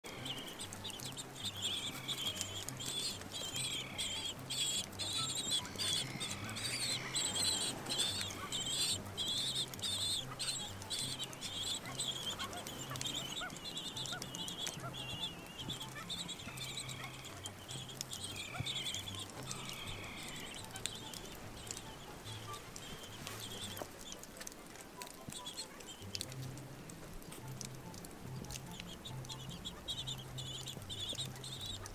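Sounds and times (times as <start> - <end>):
penguin chicks peeping: 0.0 - 31.9.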